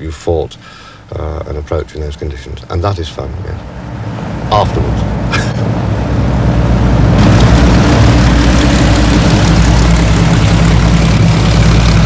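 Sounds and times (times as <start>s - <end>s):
aircraft piston engines droning: 3.6s - 12.0s.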